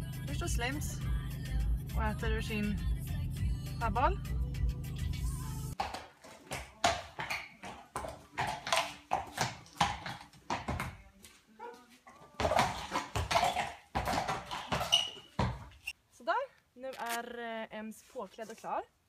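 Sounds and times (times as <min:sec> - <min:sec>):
horse hooves on concrete: 0:05.7 - 0:16.0.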